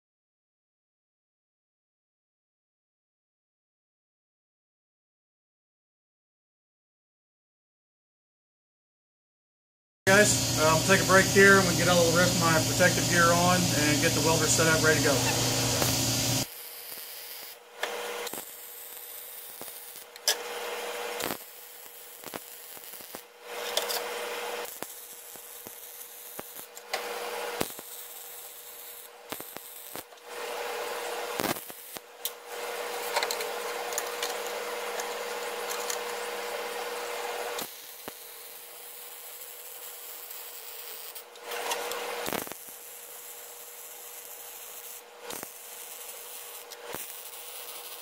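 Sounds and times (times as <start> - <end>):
steady hum: 10.1 - 16.5
welding arc crackling and sizzling: 10.1 - 48.0.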